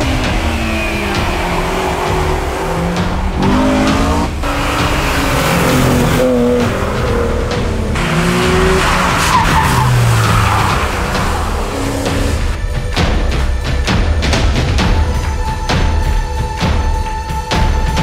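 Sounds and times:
race car engines revving: 0:00.0 - 0:12.6.

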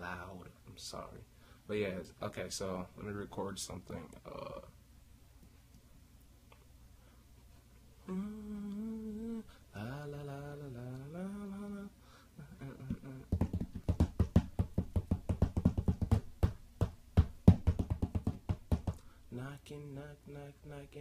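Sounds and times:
man humming into a microphone: 0:08.0 - 0:13.4
fast sharp percussive hits: 0:13.0 - 0:19.0.

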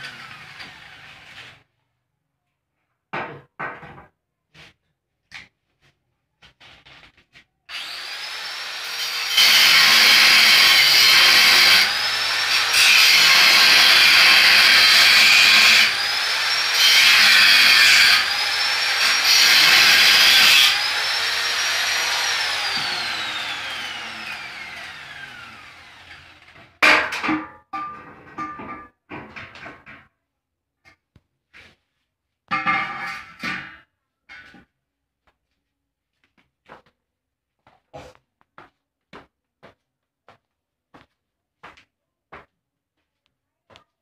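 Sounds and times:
angle grinder cutting metal: 0:00.0 - 0:01.6, 0:07.7 - 0:26.8.

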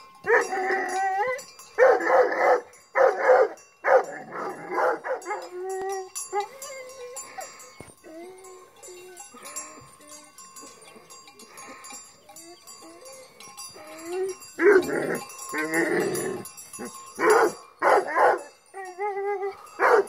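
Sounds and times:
bells ringing: 0:00.0 - 0:20.0
dog yelping: 0:00.3 - 0:11.2, 0:12.3 - 0:20.0
dog barking: 0:01.8 - 0:05.5, 0:17.2 - 0:18.5, 0:19.8 - 0:20.0.

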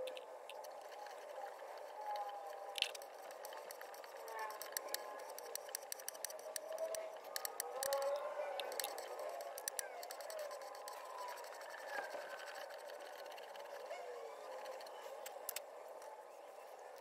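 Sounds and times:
tap wrench clicking while threading metal: 0:02.8 - 0:11.0.

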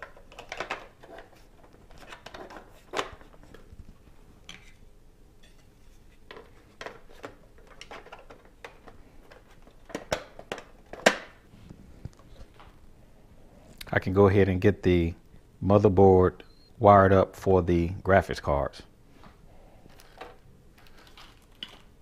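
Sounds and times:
plastic cover clicks and rattles: 0:00.0 - 0:03.6, 0:06.3 - 0:11.4
plastic cover snapping: 0:09.8 - 0:11.4.

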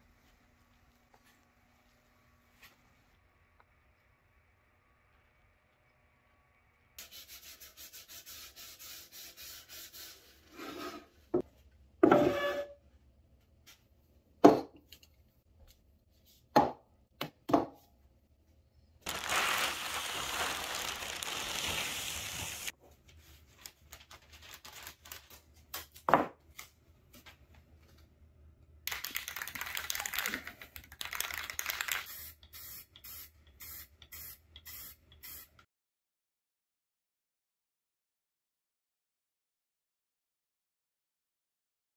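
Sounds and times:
aerosol spray can hissing: 0:19.3 - 0:22.7, 0:31.8 - 0:35.6.

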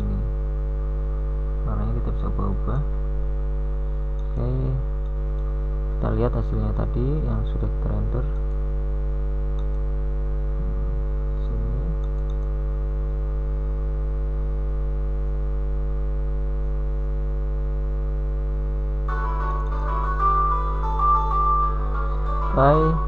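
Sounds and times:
electrical mains hum: 0:00.0 - 0:23.0
plucked guitar music: 0:19.1 - 0:23.0.

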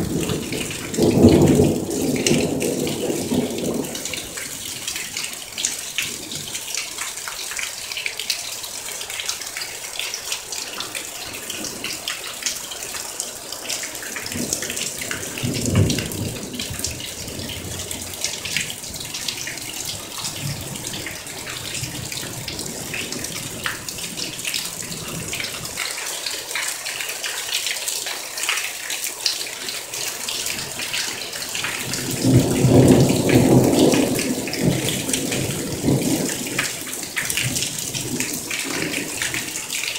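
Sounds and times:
low thunder rumbling: 0:00.0 - 0:04.9, 0:14.2 - 0:25.5, 0:31.6 - 0:39.6
close drips and splashes: 0:00.0 - 0:39.9
heavy rain downpour: 0:00.0 - 0:39.9.

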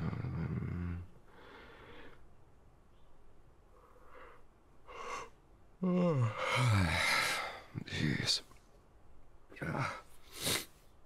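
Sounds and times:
man groaning: 0:00.0 - 0:01.1, 0:05.8 - 0:07.6
man sighing loudly: 0:05.8 - 0:07.7.

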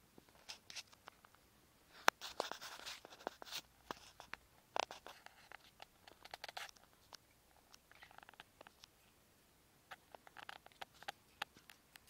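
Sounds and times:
claws and beaks scratching on wire: 0:00.4 - 0:01.0, 0:02.0 - 0:08.9, 0:09.9 - 0:12.0.

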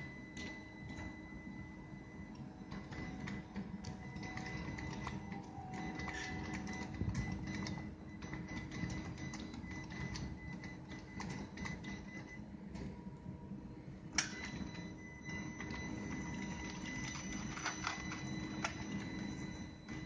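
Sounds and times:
electric actuators whirring: 0:00.0 - 0:20.0.

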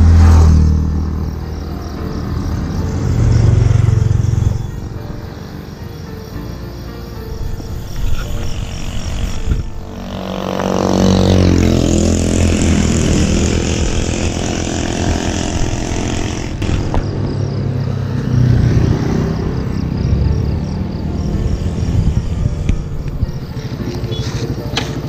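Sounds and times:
vehicle passing by: 0:00.0 - 0:06.0, 0:07.3 - 0:25.0
road noise: 0:00.0 - 0:25.0.

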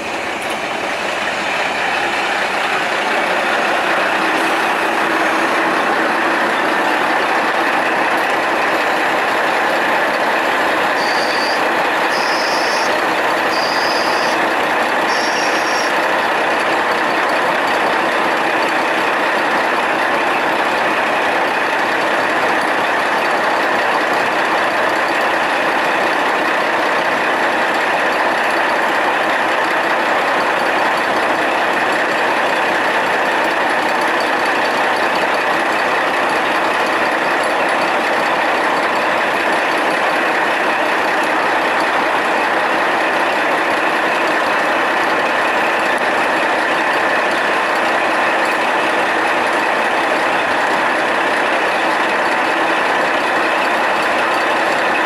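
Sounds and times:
diesel railcar engine droning: 0:00.0 - 0:55.0
short high-pitched sound: 0:13.5 - 0:14.4.

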